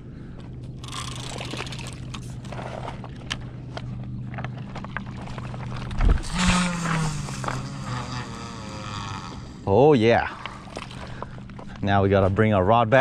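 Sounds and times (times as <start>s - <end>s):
reel spool whirring: 0.7s - 11.3s
fishing reel clicking: 0.8s - 2.3s.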